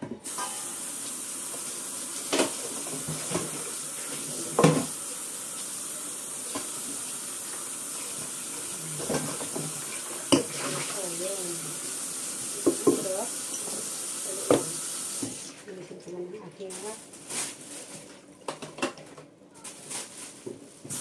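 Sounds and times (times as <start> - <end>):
tap water running into sink: 0.0 - 15.6
knocks against sink: 12.6 - 13.1.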